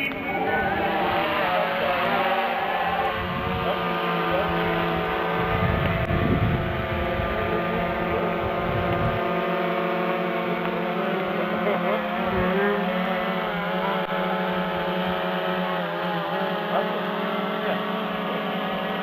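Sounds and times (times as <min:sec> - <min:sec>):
wind rumbling on microphone: 0:00.0 - 0:09.6
model airplane motor humming: 0:00.0 - 0:19.0.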